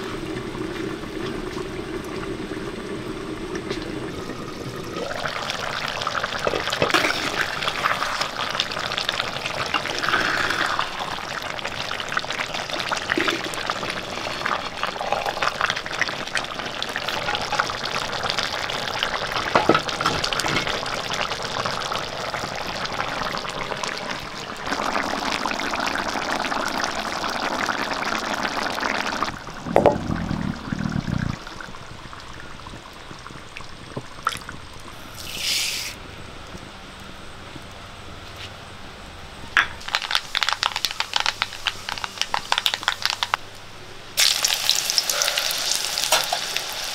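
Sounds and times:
curry bubbling in a pan: 0.0 - 36.6.

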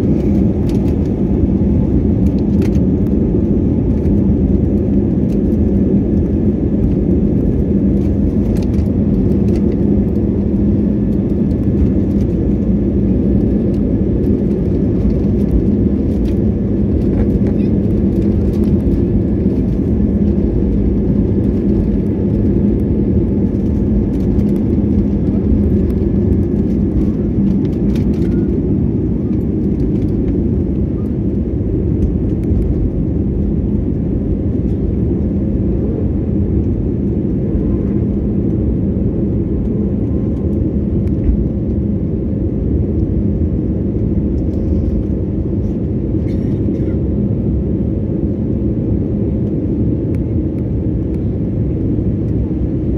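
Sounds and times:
jet engines rumbling in cabin: 0.0 - 52.9.

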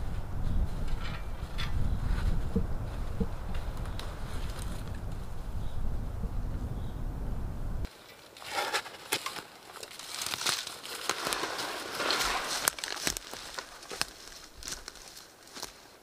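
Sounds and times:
wind rumbling on microphone: 0.0 - 7.9
crackling rustling with clicks: 8.1 - 15.9.

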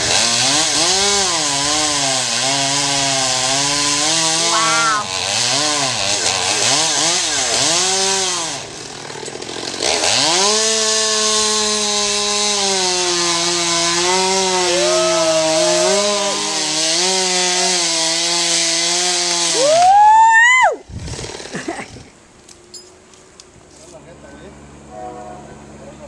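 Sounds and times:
chainsaw revving and cutting: 0.0 - 19.9, 20.9 - 22.1.

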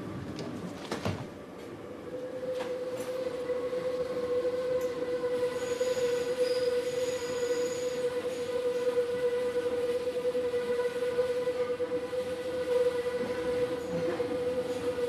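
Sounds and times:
metro train rumbling with whine: 0.0 - 15.0
high wheel squeal: 5.5 - 8.8.

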